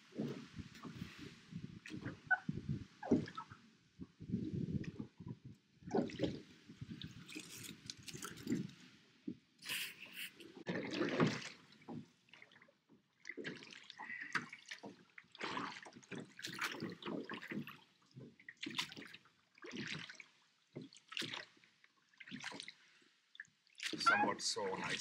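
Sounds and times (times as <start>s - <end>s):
oars splashing in water: 0.0s - 3.6s, 5.8s - 8.9s, 9.6s - 22.8s, 23.4s - 25.0s.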